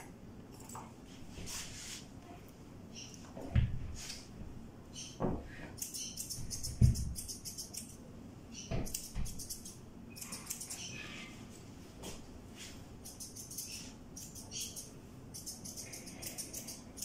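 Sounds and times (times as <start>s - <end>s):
grooming tool clicking through fur: 5.8s - 8.0s, 8.8s - 10.8s, 13.0s - 17.0s.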